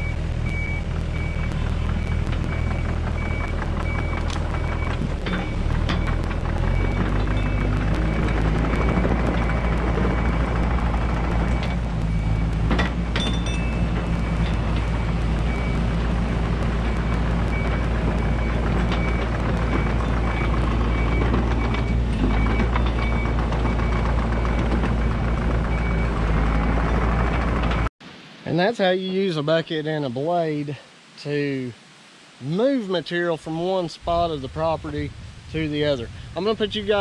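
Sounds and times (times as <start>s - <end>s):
alarm beeping: 0.0s - 27.0s
excavator diesel engine running: 0.0s - 27.9s
metallic clanks: 12.6s - 14.9s.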